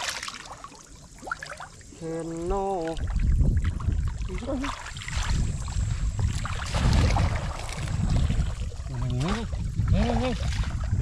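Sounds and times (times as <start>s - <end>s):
muddy water sloshing and splashing: 0.0s - 11.0s
wind on microphone: 1.9s - 11.0s.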